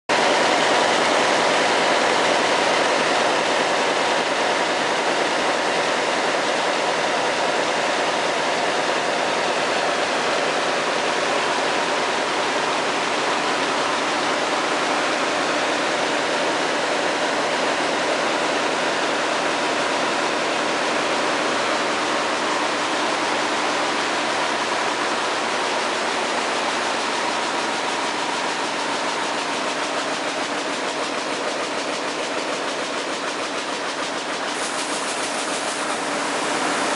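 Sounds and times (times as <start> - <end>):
weaving loom clattering: 24.5 - 36.9.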